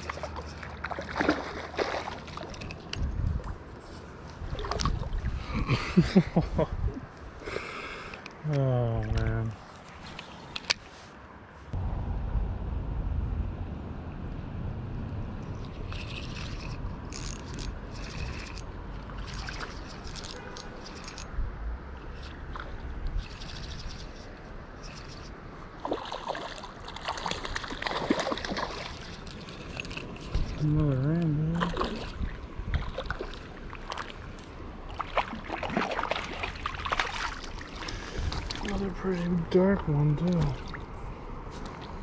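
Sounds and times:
fish splashing: 0.0s - 2.6s, 25.8s - 30.6s, 31.6s - 38.8s
stream flowing: 0.0s - 6.3s, 15.4s - 42.0s
moving water: 0.0s - 11.8s, 15.0s - 42.0s
wind: 0.0s - 42.0s.

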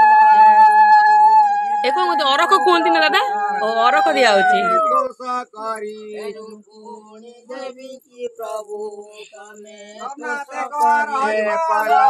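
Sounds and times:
man chanting a mantra: 4.8s - 12.0s.

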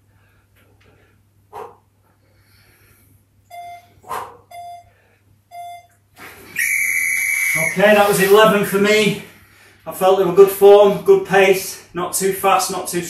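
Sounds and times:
interval timer beeps: 3.5s - 4.9s, 5.5s - 6.0s
sharp forceful exhalations: 4.0s - 4.5s.

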